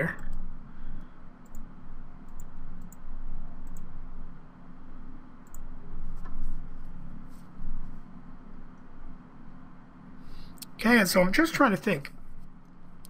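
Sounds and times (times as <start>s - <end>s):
low electrical hum: 0.0s - 13.0s
computer mouse clicking: 1.4s - 3.9s, 5.4s - 6.4s.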